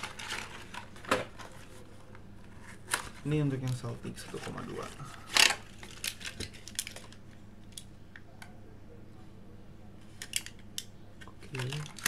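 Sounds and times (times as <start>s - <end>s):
cardboard box and plastic pack handled: 0.0s - 1.8s, 2.6s - 7.2s, 11.5s - 12.0s.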